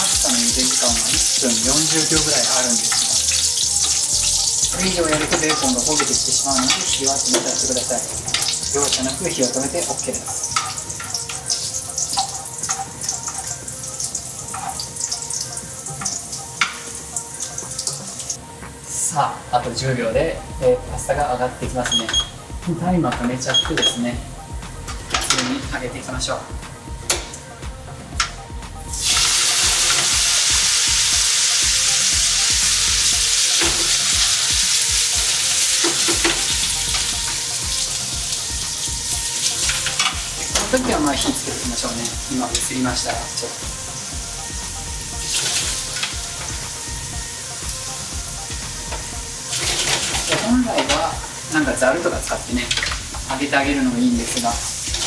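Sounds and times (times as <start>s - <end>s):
bacon sizzling in a frying pan: 0.0s - 18.5s, 28.8s - 55.0s
metal tongs clicking on pan: 10.2s - 13.5s.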